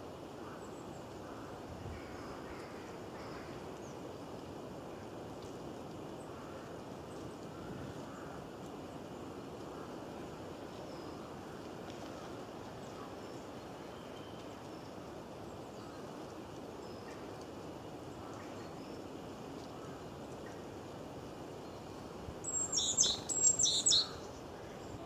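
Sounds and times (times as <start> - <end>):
forest ambience: 0.0 - 25.0
faint bird chirps: 10.7 - 16.2, 21.6 - 25.0.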